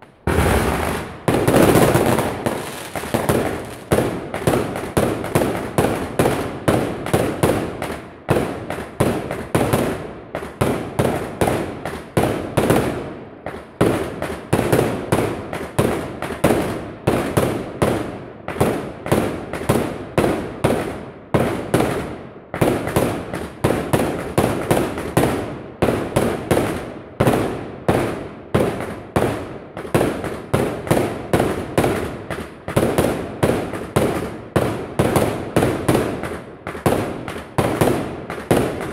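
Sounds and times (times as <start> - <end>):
fireworks banging: 0.0 - 38.9.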